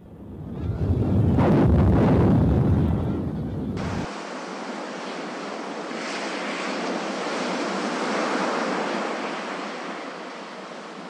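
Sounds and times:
ocean waves breaking: 3.8 - 11.0.

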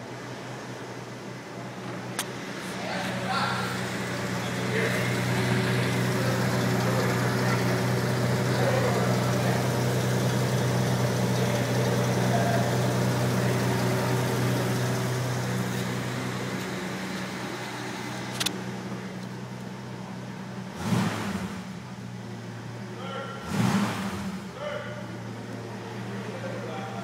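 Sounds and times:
car engine idling: 0.0 - 27.0
sharp click: 18.3 - 18.6.

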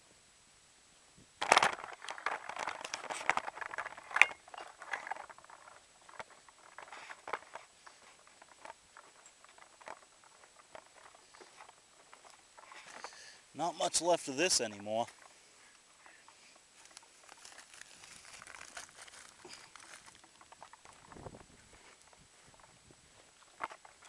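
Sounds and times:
footsteps on gravelly ground: 16.0 - 24.0.

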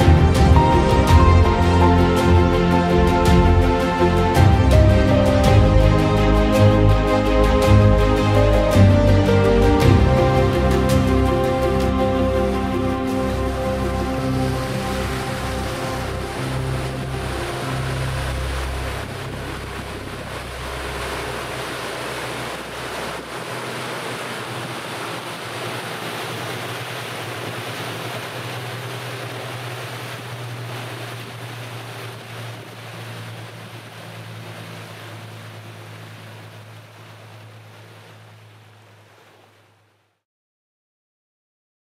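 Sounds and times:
deep rumble: 0.0 - 23.8
low engine hum: 0.0 - 39.9
water rushing past boat: 0.0 - 40.1.

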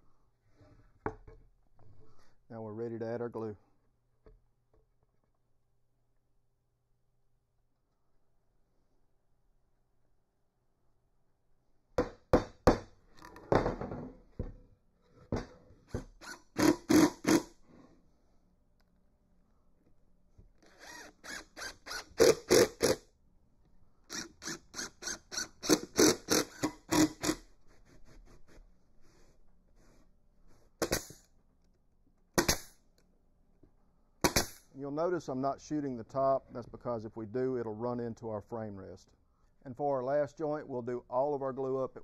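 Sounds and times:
impact driver driving screws: 15.9 - 17.5, 20.6 - 23.0, 24.1 - 27.4, 34.2 - 34.6.

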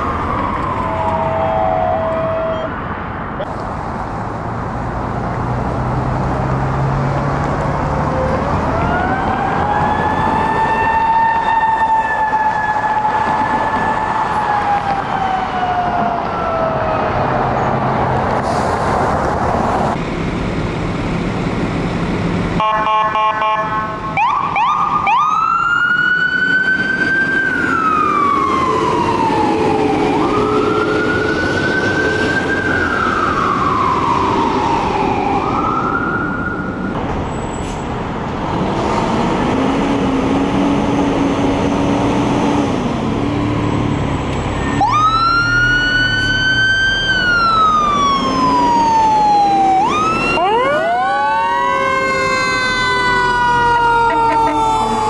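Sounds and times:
siren wailing: 0.0 - 3.0, 8.0 - 17.4, 22.6 - 36.9, 43.2 - 55.0.

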